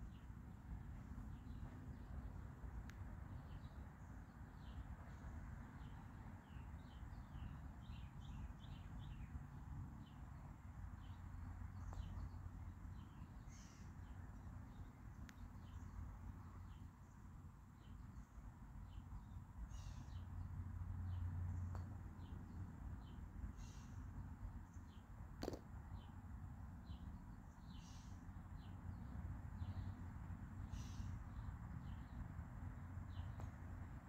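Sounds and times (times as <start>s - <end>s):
small birds chirping: 0.0s - 9.4s, 10.0s - 30.0s, 30.6s - 33.6s
faint sharp tick: 2.8s - 3.0s, 15.2s - 15.5s.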